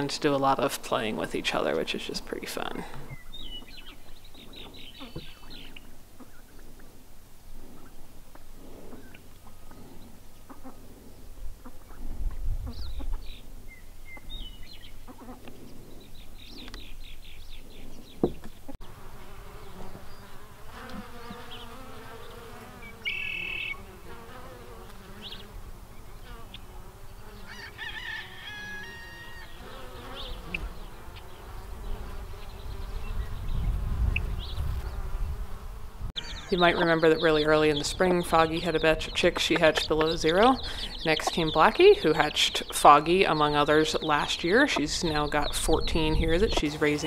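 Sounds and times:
honey bees droning: 14.4 - 47.0
high bird chirps: 21.2 - 23.9, 36.2 - 39.2.

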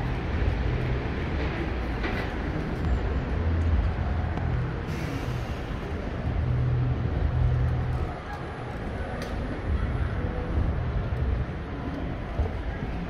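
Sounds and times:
passing vehicle engines rumbling: 0.0 - 13.0.

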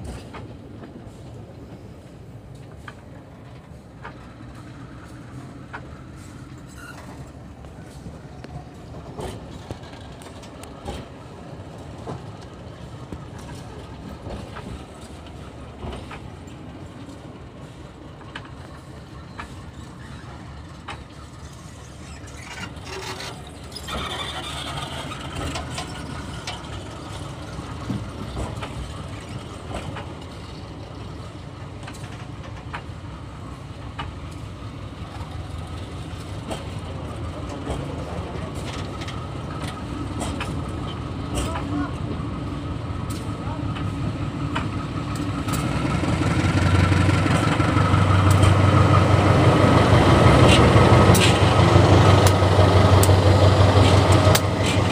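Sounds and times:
train wheels rumbling on rails: 0.0 - 54.9
wheel squeal: 6.7 - 7.3, 21.7 - 26.5.

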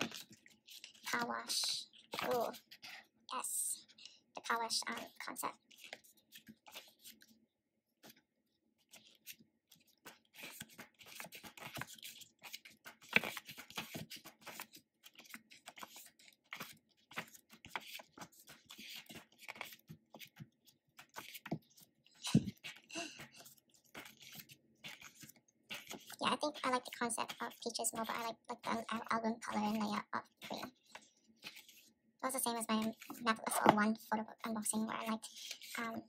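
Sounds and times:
pages of photo book turning: 0.0 - 1.3, 4.7 - 7.4, 8.8 - 29.1, 29.7 - 31.9, 32.7 - 34.0.

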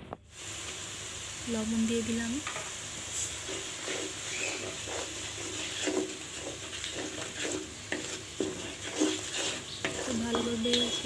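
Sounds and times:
hot oil sizzling: 0.1 - 11.0
wooden spatula scraping pan: 2.5 - 11.0.

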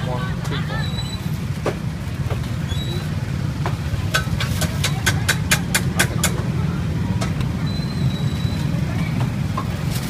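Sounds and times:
street traffic hum: 0.0 - 10.0.

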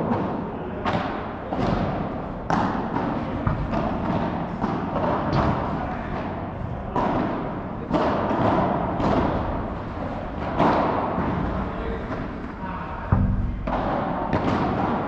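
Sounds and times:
padel ball struck by rackets: 1.0 - 6.3, 13.1 - 15.0.

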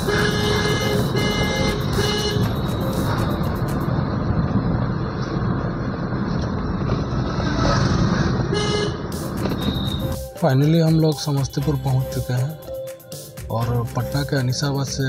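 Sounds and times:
vehicle horn tooting: 0.0 - 2.9, 8.5 - 10.2
car road and engine noise: 0.0 - 15.0.

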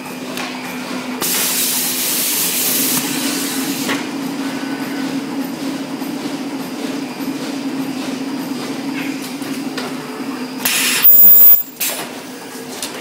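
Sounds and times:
machine running hum: 0.0 - 11.8
compressed air hissing: 10.6 - 11.6.

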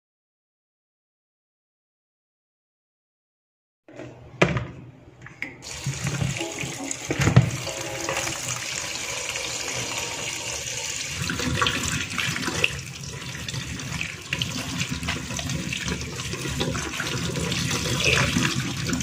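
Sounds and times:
tap water splashing in sink: 5.6 - 19.0.

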